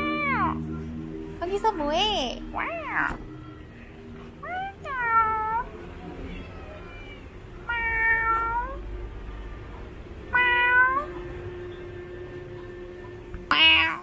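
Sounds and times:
cat meowing: 0:00.0 - 0:00.6, 0:02.5 - 0:03.3, 0:04.4 - 0:08.8, 0:10.3 - 0:11.2, 0:13.5 - 0:14.0.

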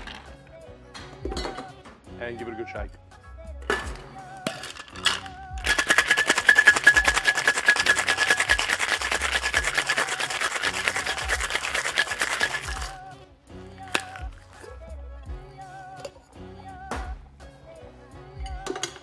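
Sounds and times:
ice rattling in cocktail shaker: 0:04.4 - 0:13.0.

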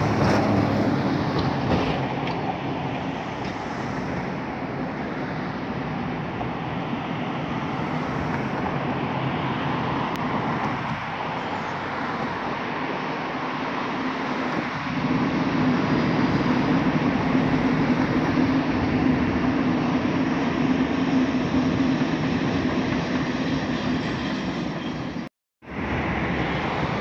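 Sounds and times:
train rolling rumble: 0:00.0 - 0:27.0.

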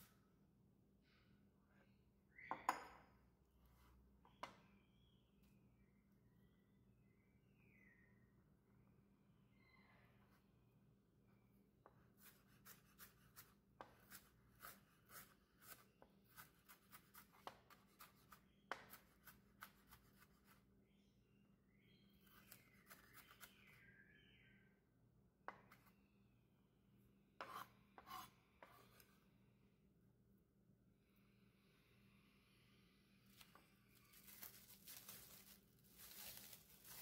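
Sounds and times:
knife chopping onion on board: 0:12.2 - 0:20.5
knife scraping cutting board: 0:27.4 - 0:29.2.

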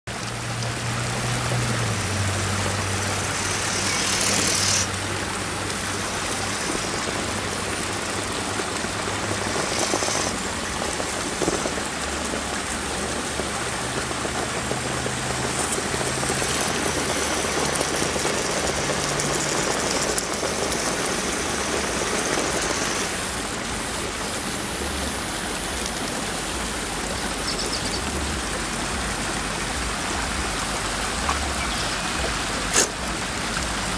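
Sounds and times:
creek water over rocks: 0:00.1 - 0:33.9
electric motor whining: 0:03.2 - 0:04.9.

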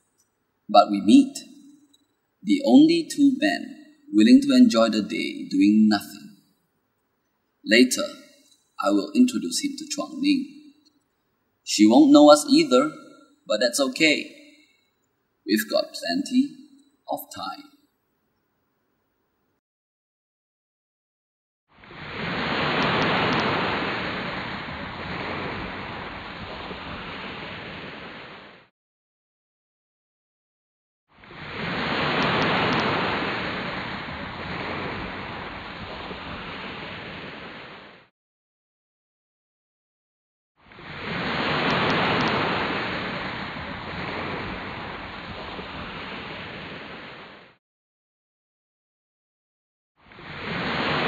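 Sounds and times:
rushing surf-like hiss: 0:22.0 - 0:28.7, 0:31.4 - 0:38.1, 0:40.9 - 0:47.6, 0:50.3 - 0:51.0.

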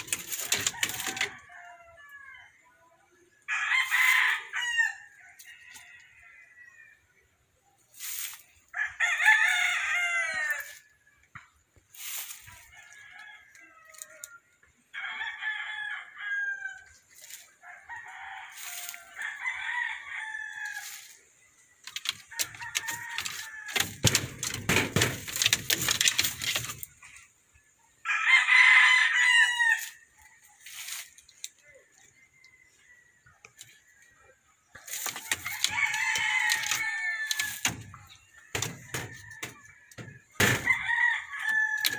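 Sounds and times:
rustling and knocking: 0:00.0 - 0:01.5, 0:21.8 - 0:27.0, 0:34.8 - 0:41.9
roosters crowing: 0:00.0 - 0:02.7, 0:03.4 - 0:07.1, 0:08.0 - 0:11.1, 0:11.9 - 0:27.0, 0:28.0 - 0:31.2, 0:34.7 - 0:41.9.

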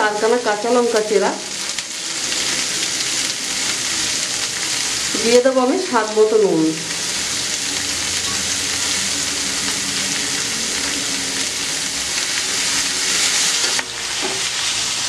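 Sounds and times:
leaves sizzling in hot oil: 0:00.0 - 0:15.0
spatula turning food in pan: 0:06.9 - 0:15.0.

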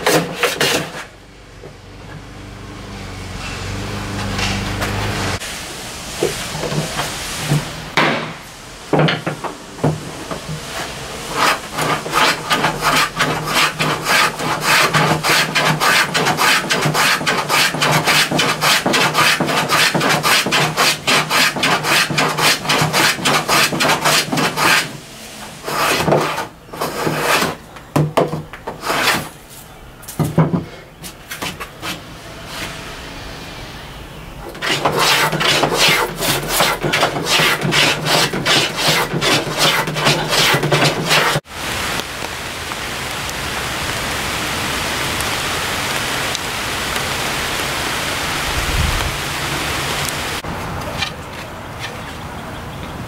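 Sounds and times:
plane cutting wood: 0:00.0 - 0:05.4, 0:09.2 - 0:27.6, 0:28.7 - 0:29.3, 0:34.4 - 0:41.4.

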